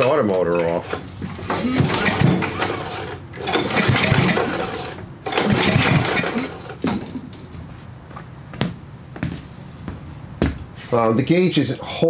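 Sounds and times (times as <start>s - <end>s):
engine cranking without firing: 0.6s - 6.8s.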